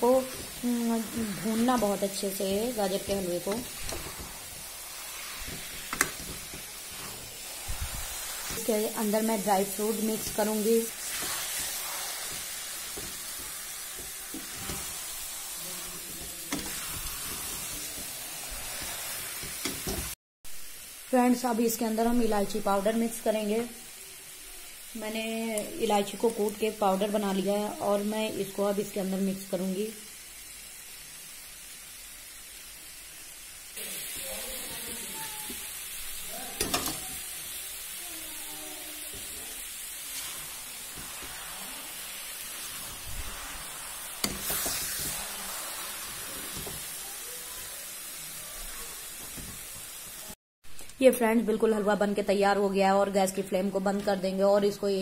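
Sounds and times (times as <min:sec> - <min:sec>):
food sizzling in a pan: 0:00.0 - 0:50.4
metal spatula scraping pan: 0:03.1 - 0:09.0, 0:09.9 - 0:15.4.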